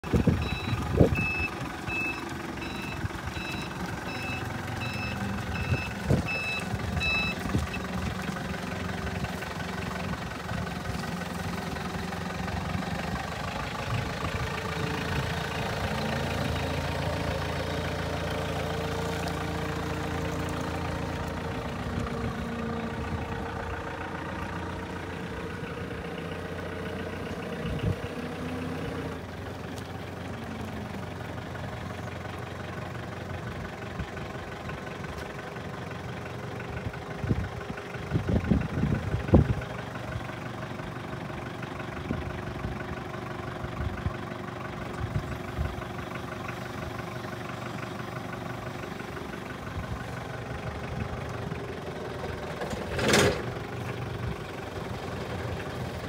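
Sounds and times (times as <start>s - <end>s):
reversing alarm beeping: 0.0s - 8.0s
forklift engine running: 0.0s - 56.0s.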